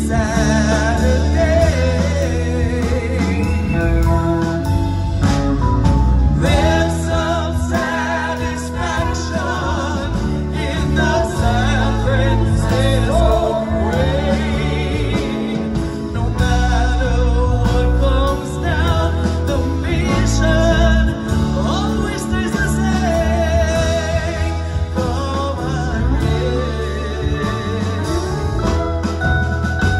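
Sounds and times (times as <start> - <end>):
bass: 0.0 - 29.9
drums: 0.0 - 29.9
keyboards: 0.0 - 29.9
backing vocals: 6.4 - 29.2
woman singing lead with vibrato: 6.4 - 29.9.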